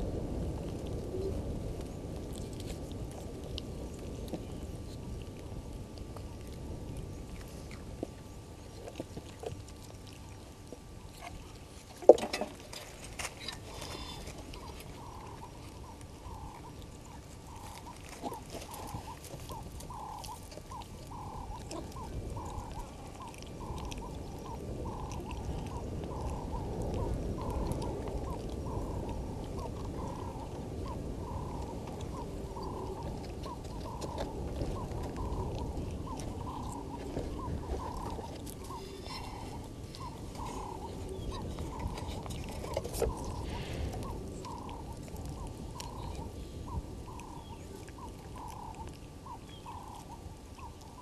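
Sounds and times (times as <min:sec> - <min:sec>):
low outdoor rumble: 0:00.0 - 0:51.0.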